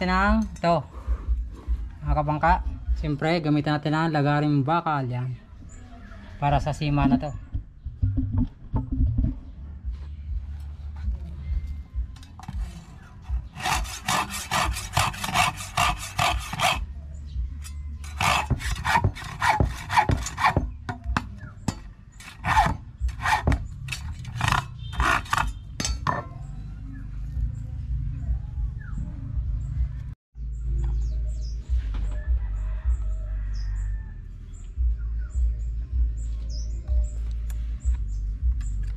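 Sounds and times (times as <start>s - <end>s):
hacksaw cutting steel rod: 13.4s - 16.8s, 17.6s - 20.8s, 21.7s - 26.2s.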